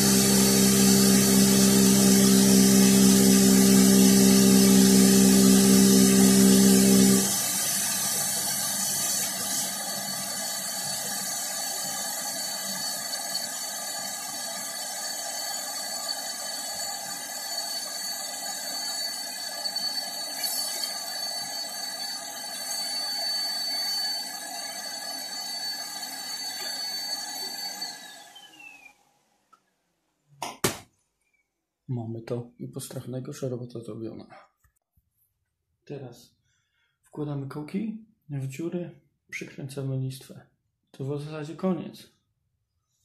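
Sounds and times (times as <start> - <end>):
vacuum cleaner whining: 0.0 - 29.0
vacuum motor winding down: 0.0 - 29.0.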